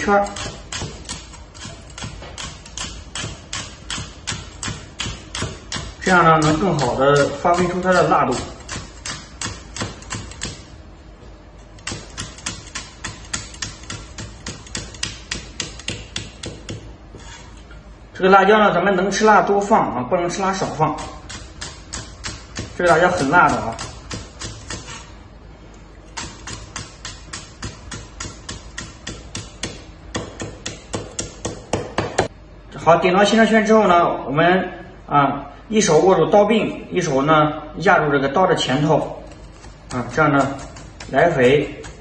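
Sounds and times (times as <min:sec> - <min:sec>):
cleaver chopping on wooden block: 0:00.2 - 0:10.6, 0:11.8 - 0:16.9, 0:26.2 - 0:32.3.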